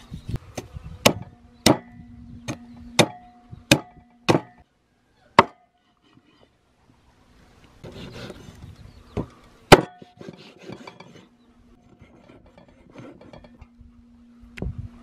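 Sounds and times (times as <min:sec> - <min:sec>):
blade chopping wood: 0:01.0 - 0:01.9, 0:02.5 - 0:04.6, 0:05.4 - 0:05.6, 0:09.7 - 0:10.2.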